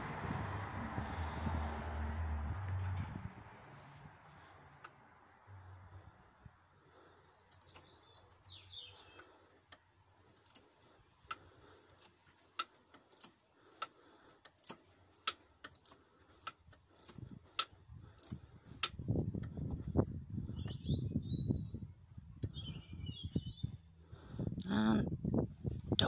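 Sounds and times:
low rumbling: 0:00.0 - 0:07.2, 0:17.2 - 0:26.0
bird chirping: 0:07.2 - 0:09.4, 0:20.4 - 0:23.9
ratchet wrench clicking: 0:10.3 - 0:10.7, 0:11.3 - 0:13.9, 0:14.5 - 0:19.0.

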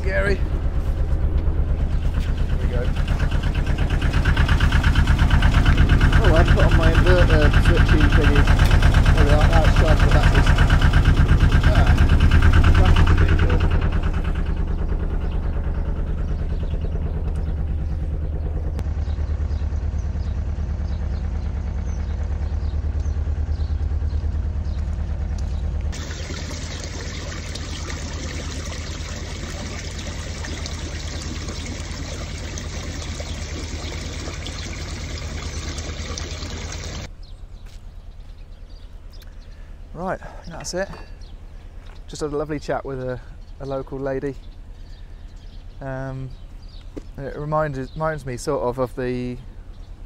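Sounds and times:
water jetting through lock gate: 0:00.0 - 0:14.6, 0:26.0 - 0:37.1
diesel engine ticking over: 0:00.0 - 0:37.4, 0:38.9 - 0:50.0.

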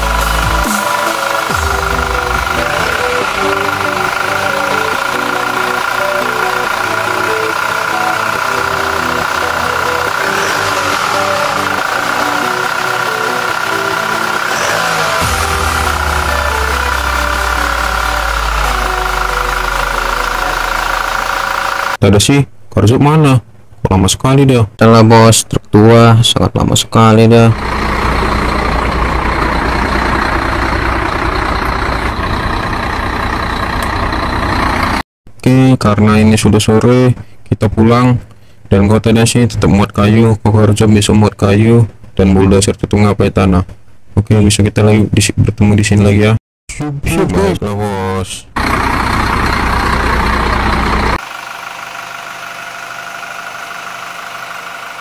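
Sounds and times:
loud noise cutting off: 0:00.0 - 0:22.0, 0:27.6 - 0:35.0, 0:48.6 - 0:55.0
toy truck engine running: 0:00.0 - 0:22.0, 0:27.6 - 0:35.0, 0:48.6 - 0:55.0.

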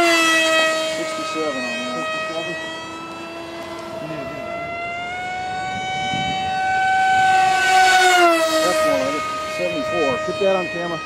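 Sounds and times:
model jet motor whine: 0:00.0 - 0:11.0.

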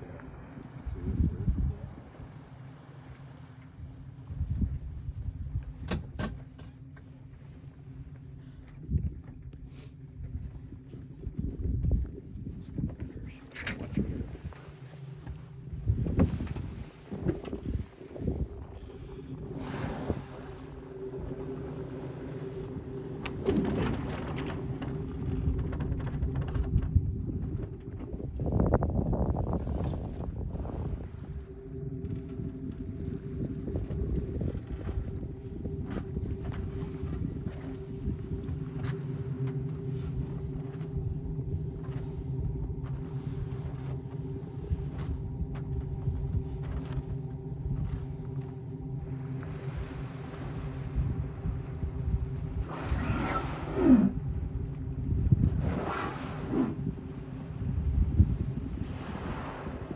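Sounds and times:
sailboat rumble: 0:00.0 - 0:59.9
steady low hum: 0:00.0 - 0:59.9
whale blowing air: 0:15.8 - 0:23.2, 0:52.2 - 0:54.6, 0:55.2 - 0:59.9.

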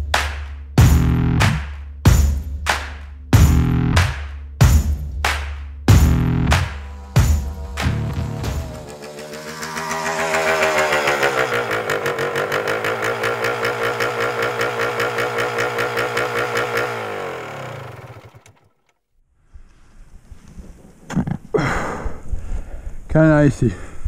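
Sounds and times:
dirt bike engine running: 0:05.9 - 0:18.9.

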